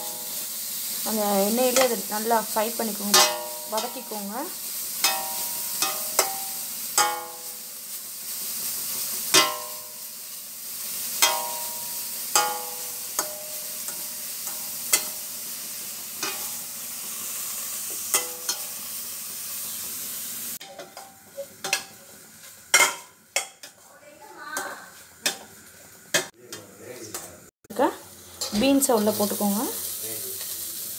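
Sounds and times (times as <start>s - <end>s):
vegetables sizzling in oil: 0.0s - 30.9s
metal spatula knocking a pot: 3.1s - 4.2s, 5.0s - 7.5s, 9.3s - 9.9s, 11.2s - 15.2s, 18.1s - 18.6s, 20.6s - 22.0s, 22.7s - 23.8s.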